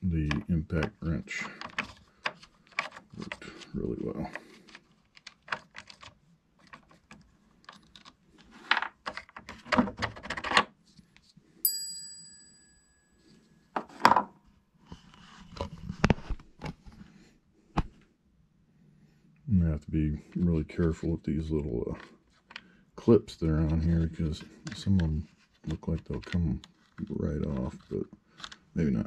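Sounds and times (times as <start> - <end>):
plastic parts clicking and rattling: 0.2 - 10.8
metallic ding: 11.7 - 13.2.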